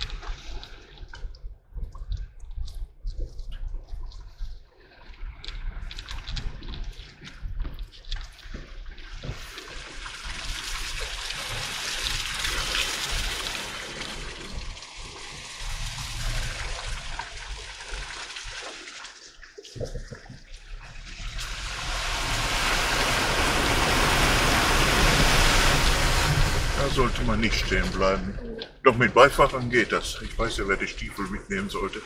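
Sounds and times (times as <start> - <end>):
water splashing from tyres: 9.0 - 32.0
low engine rumble: 21.8 - 32.0.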